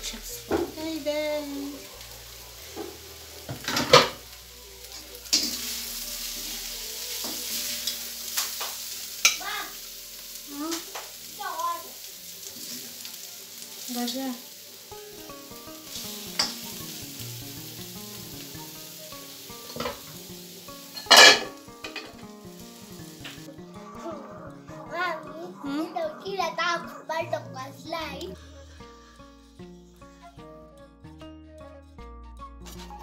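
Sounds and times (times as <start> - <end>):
meat sizzling in a wok: 0.0 - 23.9.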